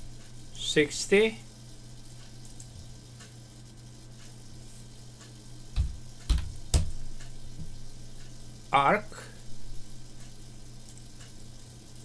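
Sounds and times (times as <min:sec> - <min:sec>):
low electrical hum: 0:00.0 - 0:12.0
faint ticks: 0:02.1 - 0:05.4, 0:10.1 - 0:11.7
computer mouse clicks: 0:02.4 - 0:03.3.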